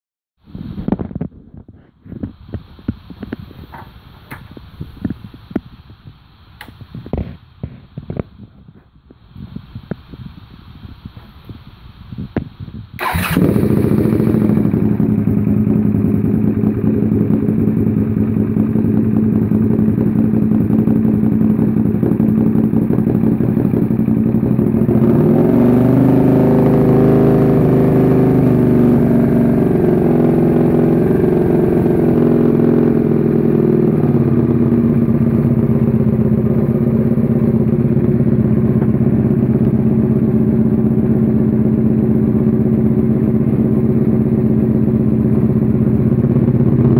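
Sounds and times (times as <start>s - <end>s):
motorcycle engine revving and idling: 12.4s - 46.9s.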